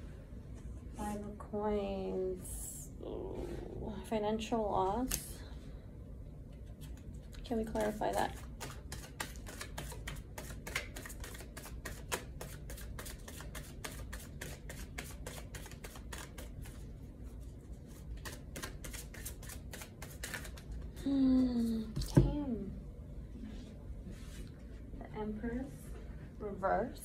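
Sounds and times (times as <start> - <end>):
cards being shuffled: 6.6 - 16.8, 17.9 - 20.9.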